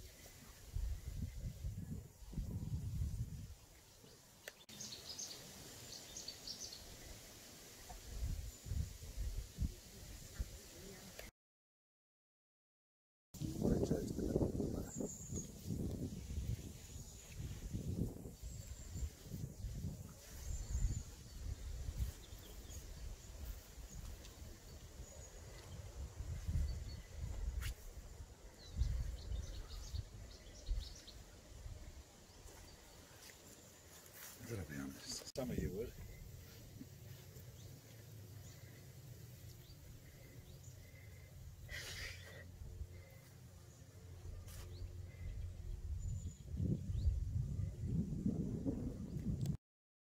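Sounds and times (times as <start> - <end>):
gusty wind rumble on microphone: 0.7 - 3.6, 13.4 - 23.5, 25.7 - 31.0, 45.2 - 49.6
faint bird chirps: 28.5 - 31.4.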